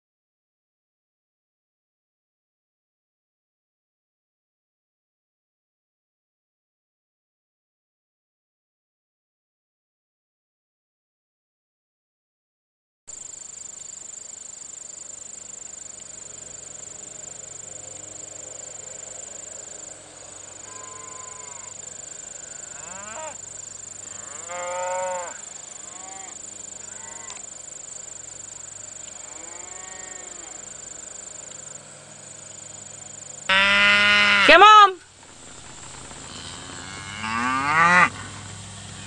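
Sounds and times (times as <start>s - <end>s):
steady high hiss: 13.2s - 33.6s
cows mooing and bawling: 20.5s - 21.8s, 22.4s - 23.4s, 24.0s - 27.4s, 29.1s - 30.7s, 33.5s - 34.8s, 35.4s - 38.6s.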